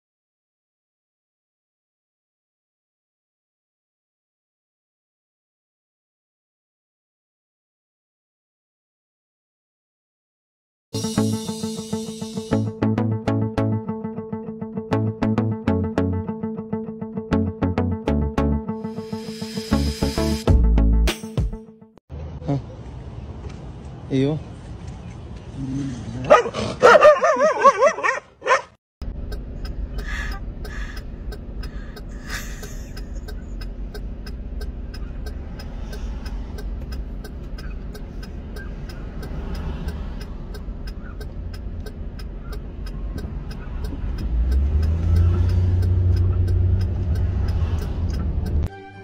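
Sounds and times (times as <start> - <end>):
low engine rumble of traffic: 22.1 - 48.7
dog's wavering cry: 26.4 - 28.7.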